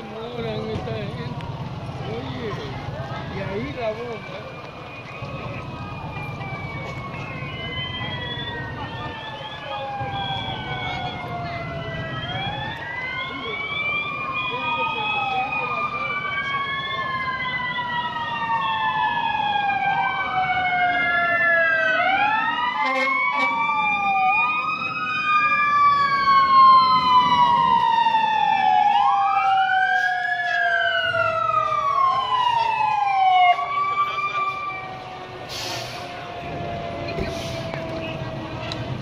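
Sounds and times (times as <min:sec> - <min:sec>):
sirens wailing: 0:00.0 - 0:39.0.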